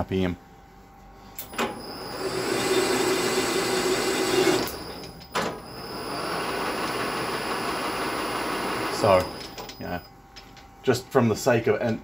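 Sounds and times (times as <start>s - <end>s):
metal lathe cutting: 1.7s - 9.6s.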